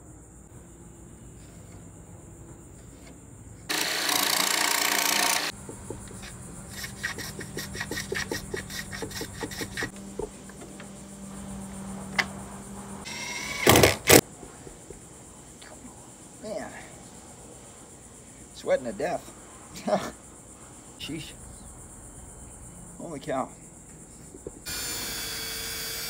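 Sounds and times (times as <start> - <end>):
hand tool rubbing on wood: 2.7 - 13.1
loud steady hiss: 3.7 - 26.0
wooden board knocking: 5.6 - 6.2, 7.0 - 10.8.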